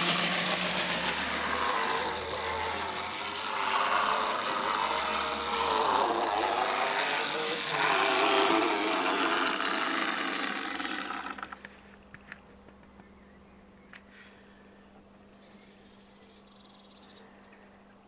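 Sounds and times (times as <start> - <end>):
model locomotive motor whirring: 0.0 - 11.6
faint hum: 0.0 - 18.0.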